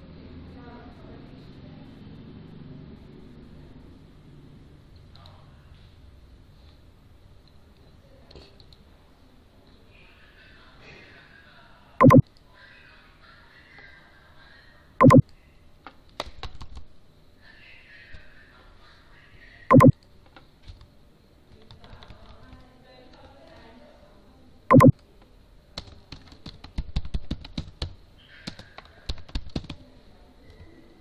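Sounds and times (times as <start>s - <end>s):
typing on a keyboard: 16.2s - 16.8s, 21.5s - 23.8s, 25.8s - 29.9s.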